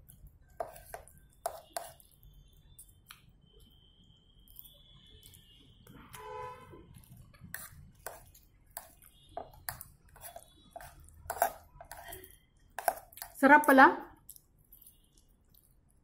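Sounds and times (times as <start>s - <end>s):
cutlery scraping on plate: 8.8s - 12.1s, 12.8s - 13.1s.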